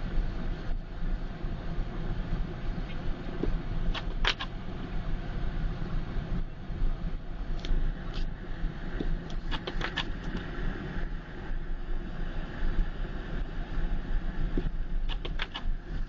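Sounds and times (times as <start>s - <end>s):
car engine and tyres rumbling: 0.0s - 16.0s
sharp clicks: 3.9s - 4.5s, 15.1s - 15.7s.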